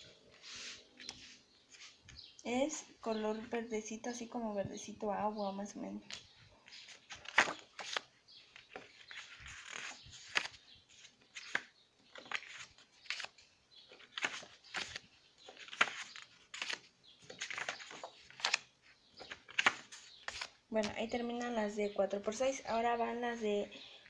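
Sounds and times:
paper cards rustling and flicking: 6.0 - 21.6.

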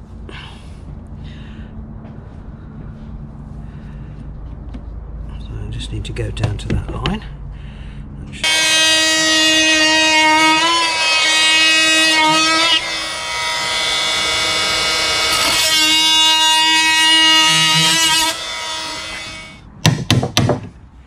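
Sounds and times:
oscillating multi-tool cutting wood: 8.4 - 19.6
hammer striking chisel: 19.8 - 20.7.

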